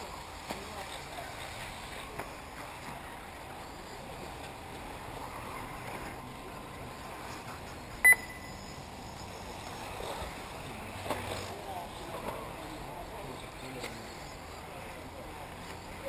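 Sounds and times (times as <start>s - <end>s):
short high electronic beep: 8.0s - 8.8s.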